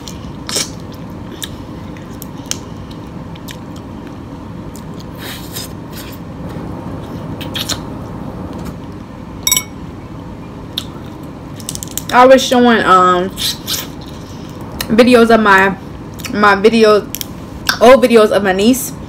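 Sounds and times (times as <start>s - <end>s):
chewing and lip smacks: 0.0s - 6.2s, 7.4s - 7.9s
air conditioner hum: 0.0s - 19.0s.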